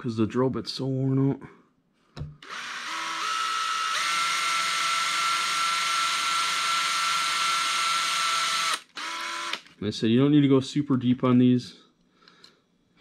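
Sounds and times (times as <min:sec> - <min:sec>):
cordless drill motor whine: 0:02.4 - 0:09.7.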